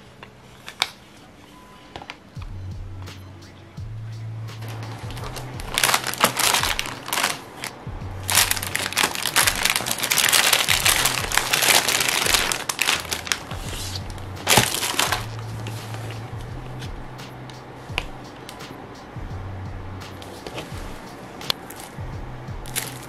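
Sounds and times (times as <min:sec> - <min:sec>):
plastic bag crinkling: 0:04.6 - 0:16.3, 0:22.7 - 0:23.0.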